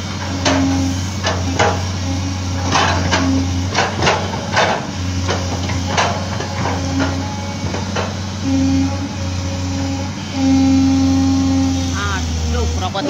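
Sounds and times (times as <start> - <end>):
diesel engine droning: 0.0 - 13.0.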